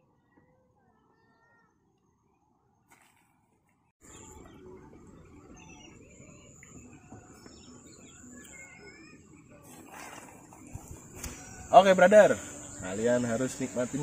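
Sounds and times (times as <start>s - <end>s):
birds chirping: 4.0s - 14.0s
soft outdoor hiss: 9.5s - 14.0s
high insect drone: 10.7s - 14.0s.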